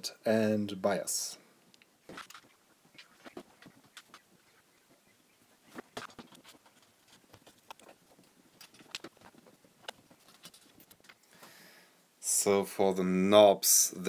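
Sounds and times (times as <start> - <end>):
clicks and knocks of handling: 5.8 - 11.2.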